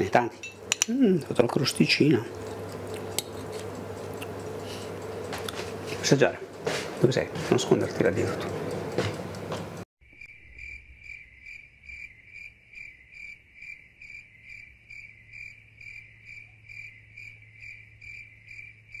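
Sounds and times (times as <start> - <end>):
cricket chirping: 10.0 - 19.0.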